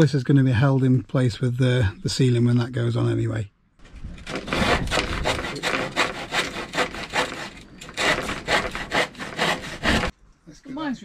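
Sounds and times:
handsaw cutting wood: 4.3s - 10.1s.

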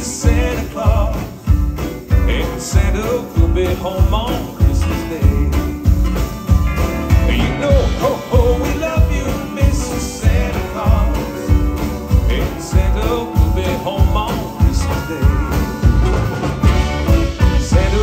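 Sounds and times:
drums steady beat: 0.0s - 18.0s
live band playing country song: 0.0s - 18.0s.

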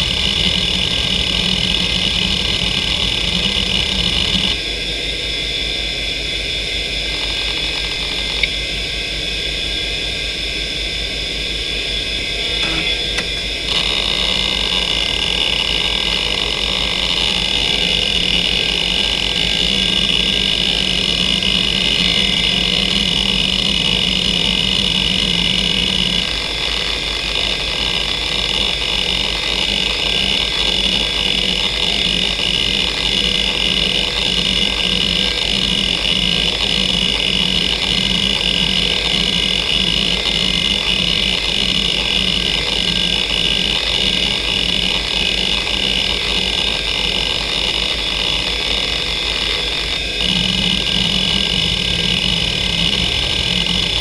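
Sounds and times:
hard drive actuator clattering: 0.0s - 4.6s, 12.5s - 48.2s
hard drive high whine: 0.0s - 54.0s.

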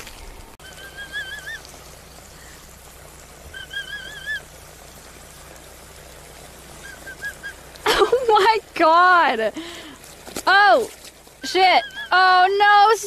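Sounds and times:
water spraying on plastic: 0.0s - 13.0s
warbling whistle-like tone: 0.6s - 2.1s, 3.4s - 4.5s, 6.8s - 7.7s.

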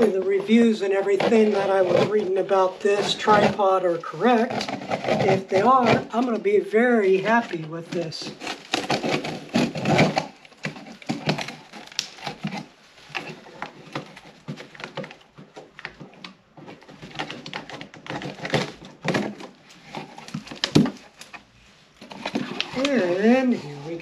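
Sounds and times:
packing tape ripping off cardboard: 8.2s - 21.4s, 22.0s - 23.8s.

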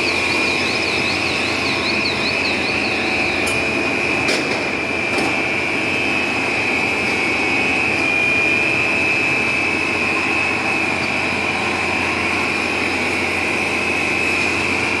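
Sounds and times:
high machine whine: 0.0s - 15.0s
machine noise: 0.0s - 15.0s.

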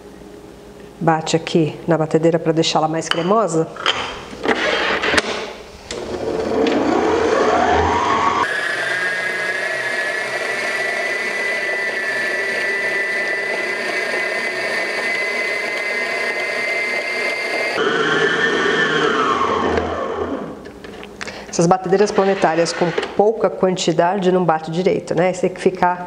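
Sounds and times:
stand mixer motor whine: 5.9s - 20.7s.

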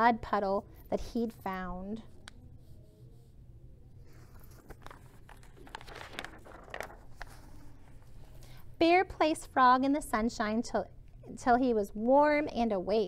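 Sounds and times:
low steady hum: 0.0s - 13.0s
paper rustling: 4.0s - 8.5s
page turning: 4.1s - 8.4s.

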